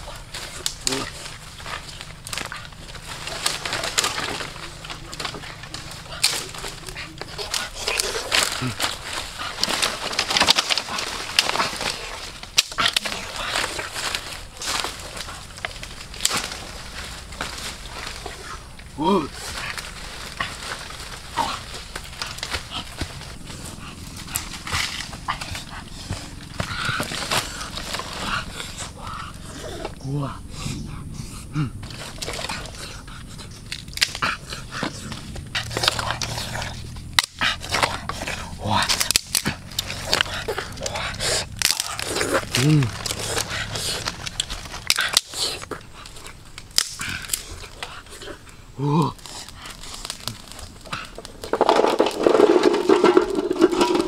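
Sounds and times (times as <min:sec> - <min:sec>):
firewood set down on ground: 0:00.0 - 0:29.2, 0:49.1 - 0:54.0
dry sticks snapping and crackling: 0:00.0 - 0:30.4, 0:31.7 - 0:54.0
leaves rustling: 0:00.0 - 0:54.0.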